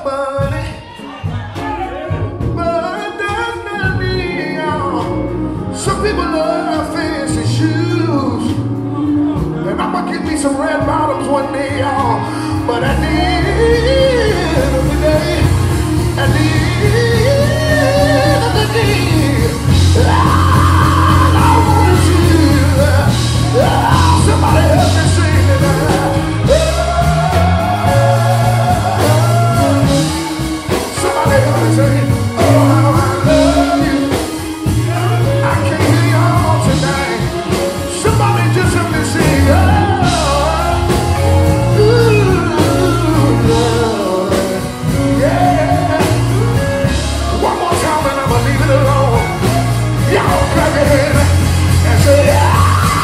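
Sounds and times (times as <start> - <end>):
held bass notes: 0.0 - 53.0
man singing melismatic runs: 9.5 - 53.0.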